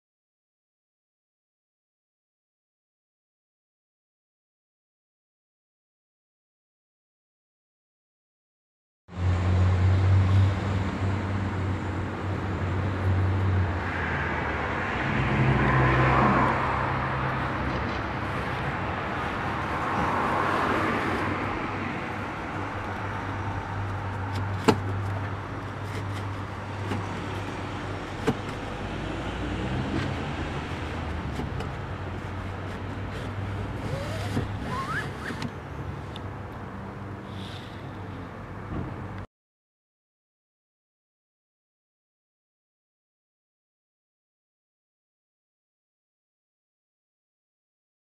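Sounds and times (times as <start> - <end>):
vehicle humming: 9.1 - 39.2
rustling noise: 24.2 - 27.6.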